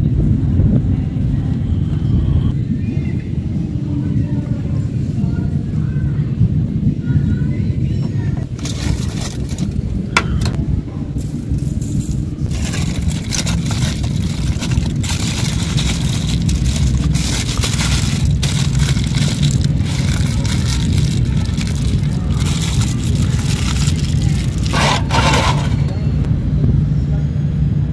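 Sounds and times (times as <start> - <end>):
low rumble: 0.0 - 27.9
aluminium foil crinkling: 8.4 - 10.6, 11.3 - 26.0.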